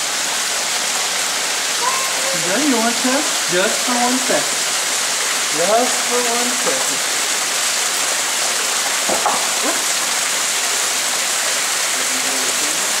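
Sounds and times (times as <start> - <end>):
small waterfall rushing: 0.0 - 13.0
faint voice: 1.8 - 2.5.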